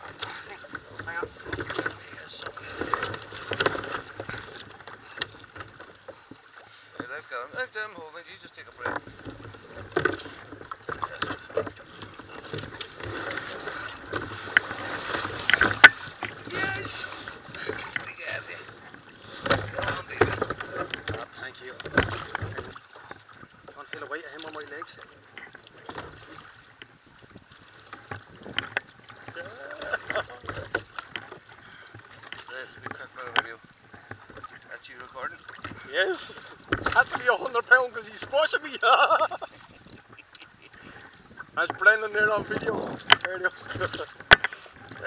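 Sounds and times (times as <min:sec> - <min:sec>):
knocks and scrapes on plastic kayak: 0:00.0 - 0:07.1, 0:08.8 - 0:23.2
rush of water and wind: 0:00.0 - 0:45.0
water splashing against hull: 0:00.0 - 0:45.0
knocks on hull: 0:19.3 - 0:23.2, 0:36.4 - 0:38.5.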